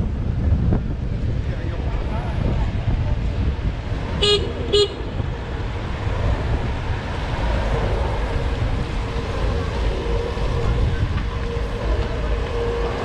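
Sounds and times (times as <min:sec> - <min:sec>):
street traffic rumble: 0:00.0 - 0:13.0
vehicle horn toots: 0:04.2 - 0:05.1.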